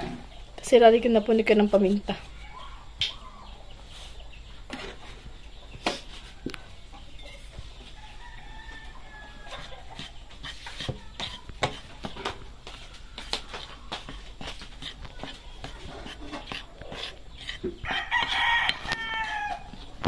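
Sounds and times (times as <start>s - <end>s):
rooster crowing: 8.0s - 9.9s, 17.8s - 19.8s.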